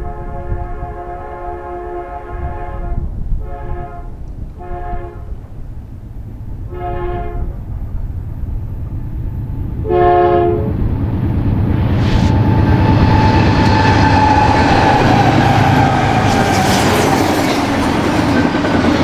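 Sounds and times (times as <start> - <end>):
locomotive horn blasts: 0.0 - 5.4, 6.7 - 7.6, 9.8 - 10.8
low rumble of train: 0.0 - 19.0.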